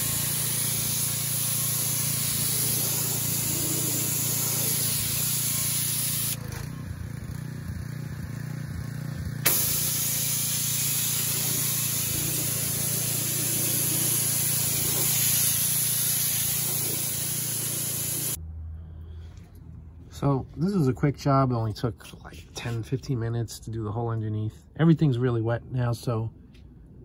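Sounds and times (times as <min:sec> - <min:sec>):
pressure washer spraying water: 0:00.0 - 0:06.4, 0:09.4 - 0:18.4.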